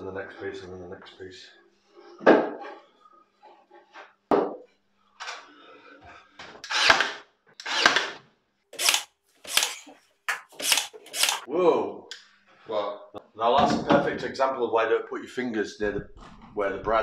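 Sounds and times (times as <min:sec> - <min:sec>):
brad nailer firing: 0:06.6 - 0:08.2, 0:08.8 - 0:09.9, 0:10.5 - 0:11.4.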